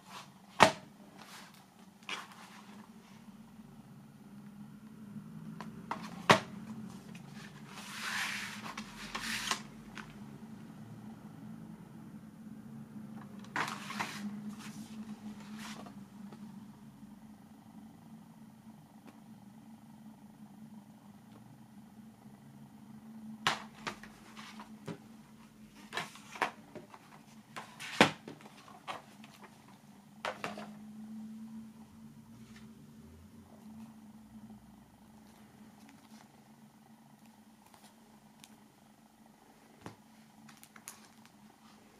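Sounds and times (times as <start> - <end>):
low steady hum: 0.0 - 41.9
booklet sliding against case: 7.1 - 9.7, 13.5 - 15.9.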